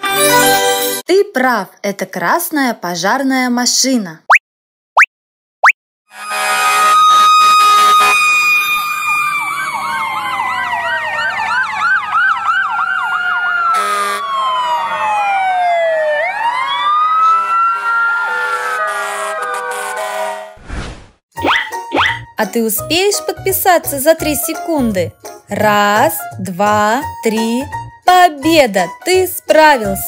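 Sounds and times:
emergency vehicle sirens: 6.1 - 20.6.

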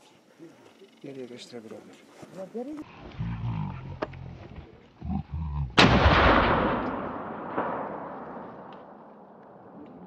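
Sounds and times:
gunshot crack with echo: 5.8 - 9.8.

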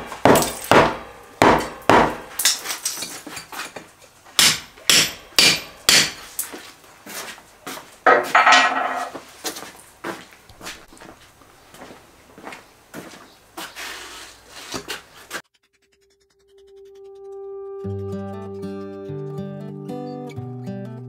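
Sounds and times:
hammer striking chisel on concrete: 0.0 - 2.6, 4.4 - 6.4.

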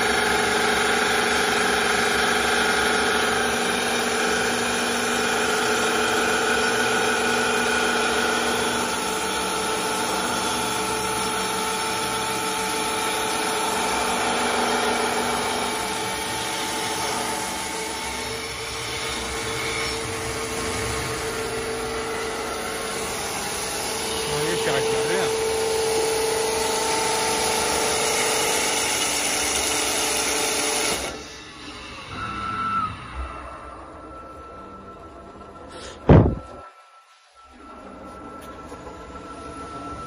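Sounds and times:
sanding wheel whir: 0.0 - 31.6
lathe motors humming: 0.0 - 32.3.

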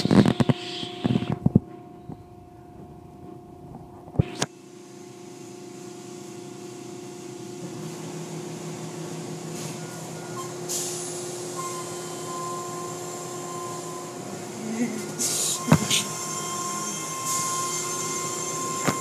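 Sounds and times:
steady machinery hum: 0.0 - 19.0.

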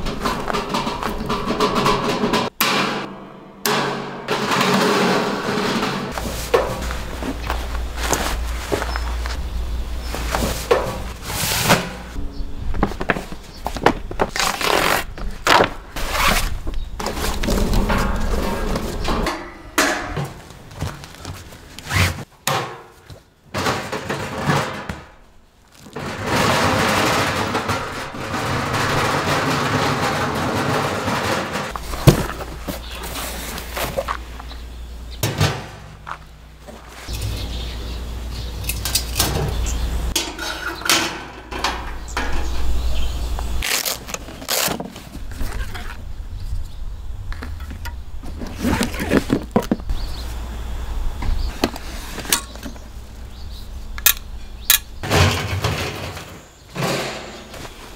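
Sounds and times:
low rumble: 6.1 - 10.4, 12.0 - 13.6.

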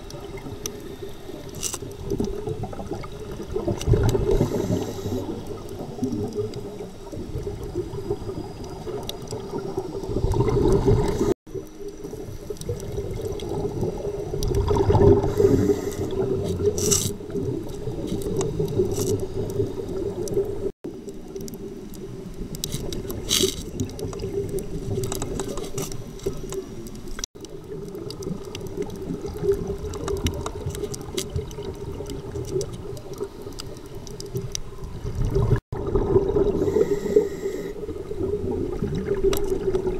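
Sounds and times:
muffled underwater hum: 0.0 - 27.7, 35.8 - 39.0
exhaled bubbles: 0.0 - 39.9
diver breathing: 15.2 - 16.4, 36.5 - 37.9.

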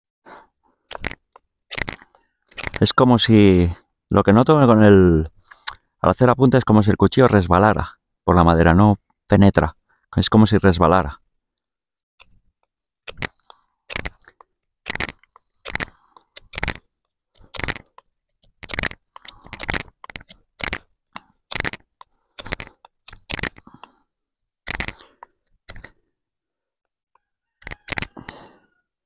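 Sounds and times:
knife scraping wooden stick: 0.9 - 2.9, 13.1 - 20.9, 21.5 - 23.7.

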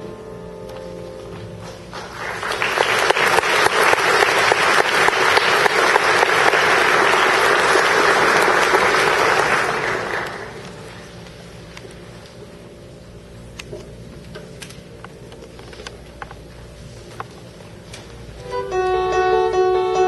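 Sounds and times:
audience applauding: 1.9 - 11.0.

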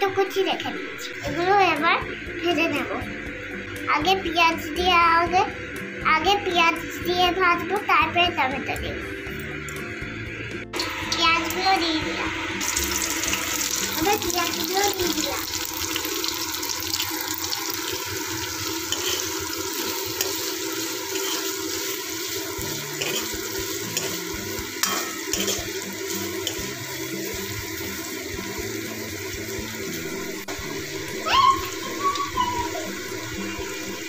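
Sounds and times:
onions sizzling in hot oil: 10.7 - 34.0.

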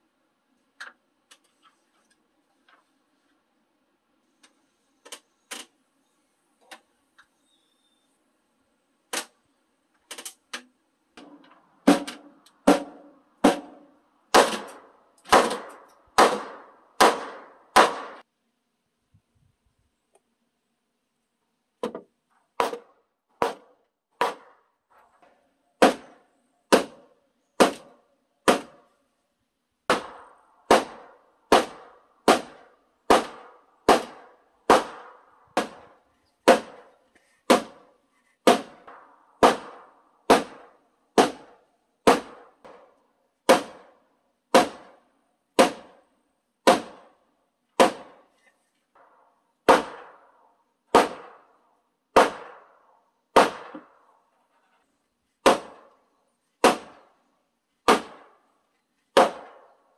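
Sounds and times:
hammer blows on timber: 11.2 - 18.2, 22.6 - 24.6, 29.9 - 42.9.

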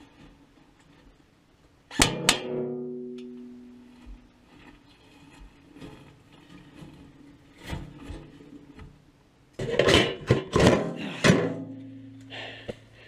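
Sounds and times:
low steady hum: 0.0 - 13.0
lid creaking: 9.6 - 11.8.

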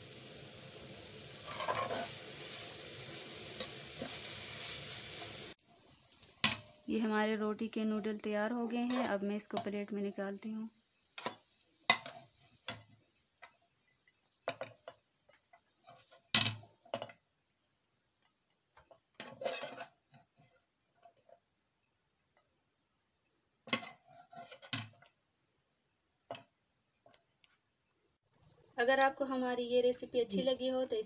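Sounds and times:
faint sizzle from pan: 0.0 - 28.2, 28.8 - 31.0
metal spatula scraping frying pan: 1.4 - 2.6, 3.6 - 5.2, 8.0 - 9.8, 11.2 - 13.5, 15.6 - 17.2, 18.8 - 21.3, 23.7 - 24.8.

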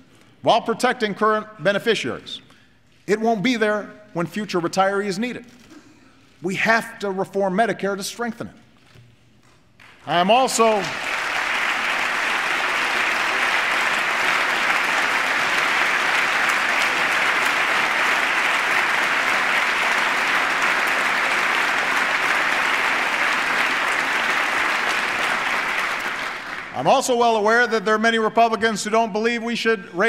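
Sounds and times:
audience applauding: 9.8 - 26.9.

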